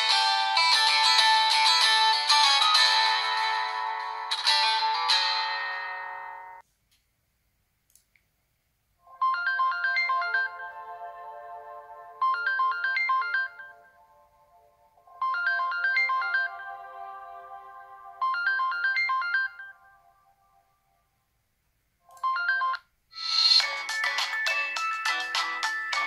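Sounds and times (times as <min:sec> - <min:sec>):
phone ringtone: 0:00.0 - 0:06.6, 0:09.1 - 0:11.2, 0:12.2 - 0:14.0, 0:15.1 - 0:17.0, 0:18.2 - 0:20.0, 0:22.2 - 0:26.0.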